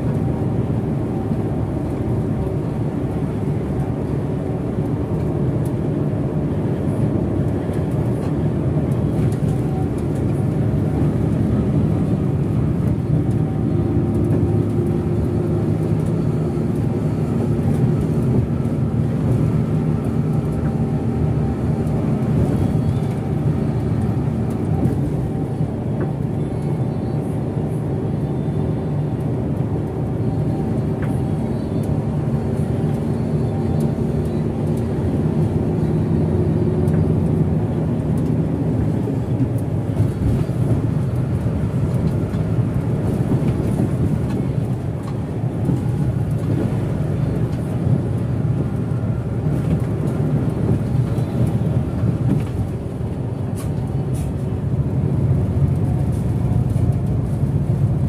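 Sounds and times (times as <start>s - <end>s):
bus engine hum: 0.0s - 58.0s
tyre and road noise: 0.0s - 58.0s.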